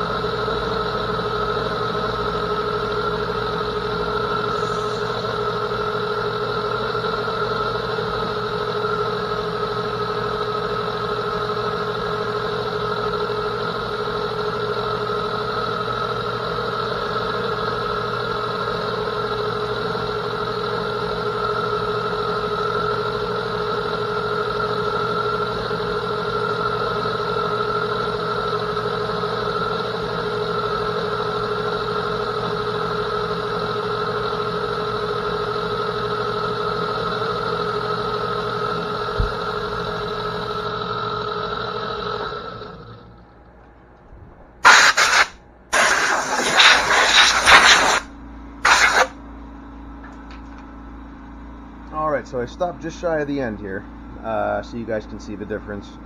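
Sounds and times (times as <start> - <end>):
metal lathe humming: 0.0 - 43.4.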